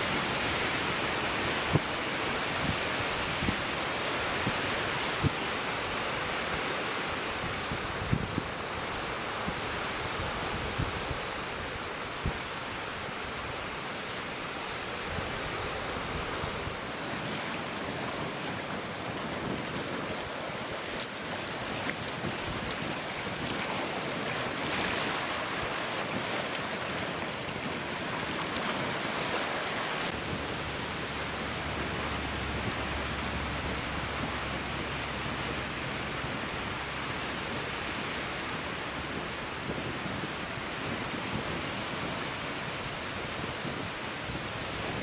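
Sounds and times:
waves breaking on rocky shore: 11.5 - 43.7.

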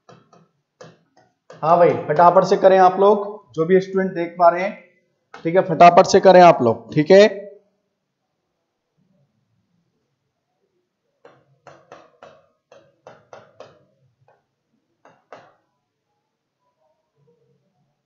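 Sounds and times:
marker pen writing on whiteboard: 0.0 - 2.6, 11.2 - 15.7.

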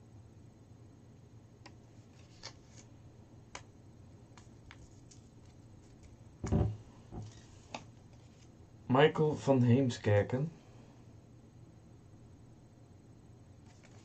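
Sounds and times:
paper rustling: 1.9 - 2.9, 4.4 - 6.2, 13.6 - 14.0
dull thump: 6.4 - 7.3.

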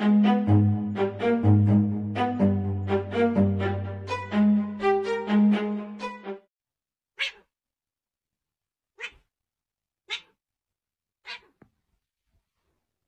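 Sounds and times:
cat meowing: 7.2 - 7.5, 9.0 - 9.3, 10.0 - 10.4, 11.2 - 11.6.

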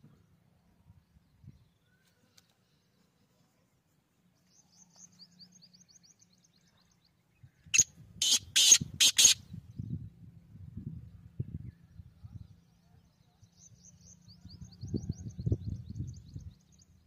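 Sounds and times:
bird harsh calls: 7.8 - 9.4
small bird twittering: 7.8 - 9.4.

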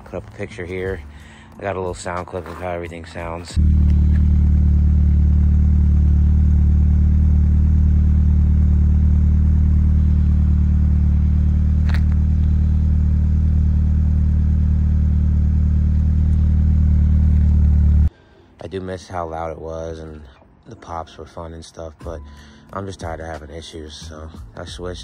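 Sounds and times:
car engine idling: 3.6 - 18.1.

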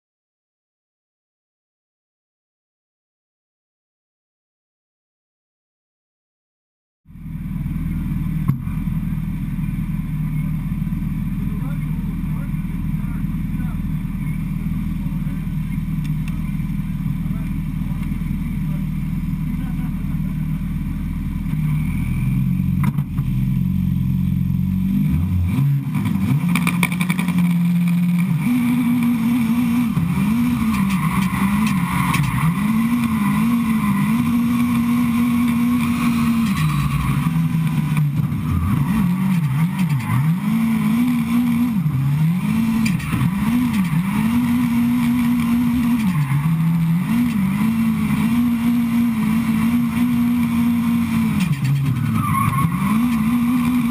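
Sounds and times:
car engine revving: 7.1 - 53.9.

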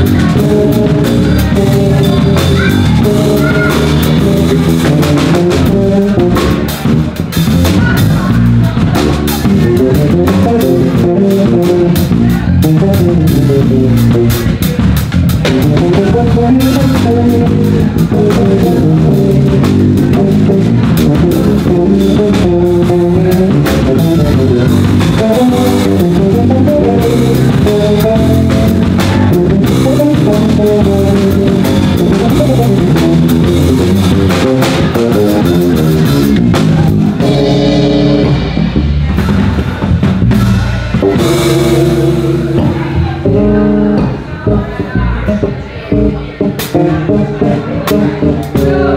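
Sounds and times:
drum kit groove: 0.0 - 48.9
electric basses playing: 0.0 - 48.9.

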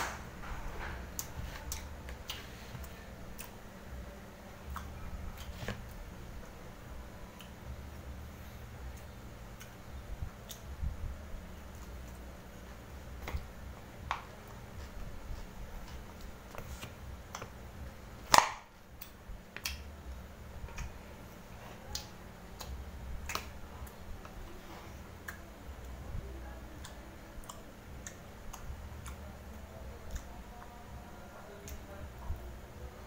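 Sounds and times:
steady low hum: 0.0 - 33.0
mouth clicks and smacks chewing: 8.9 - 10.7, 26.8 - 29.3.

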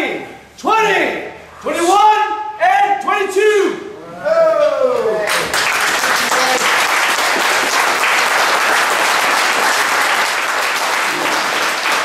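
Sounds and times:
crowd applauding: 5.2 - 12.0.

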